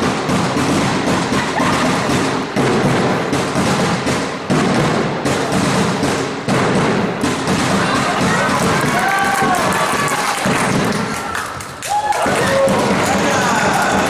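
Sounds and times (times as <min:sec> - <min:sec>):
players' footsteps on indoor court: 0:00.0 - 0:14.0.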